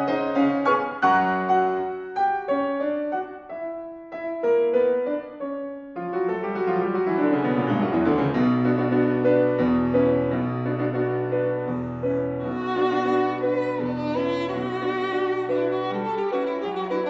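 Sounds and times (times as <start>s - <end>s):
grand piano playing: 0.0s - 17.0s.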